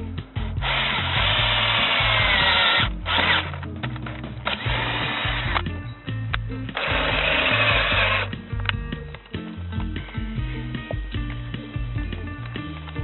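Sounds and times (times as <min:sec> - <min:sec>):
background music: 0:00.0 - 0:13.0
power drill grinding through metal: 0:00.4 - 0:03.6, 0:04.4 - 0:05.6, 0:06.7 - 0:08.4.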